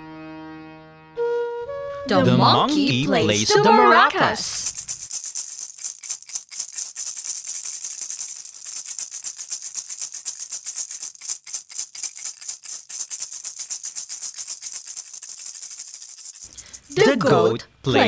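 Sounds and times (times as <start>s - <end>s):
maracas rattling: 3.2s - 17.4s.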